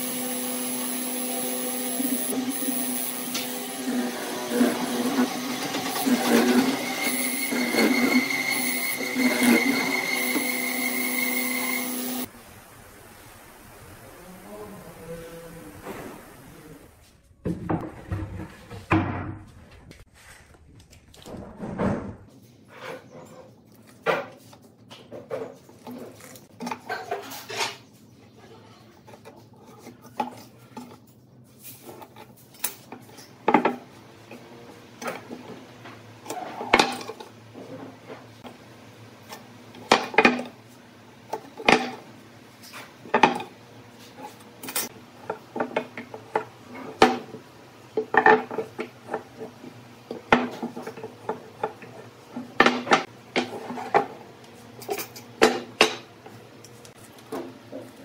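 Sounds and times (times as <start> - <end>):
tools knocking on wooden boards: 50.1 - 53.5.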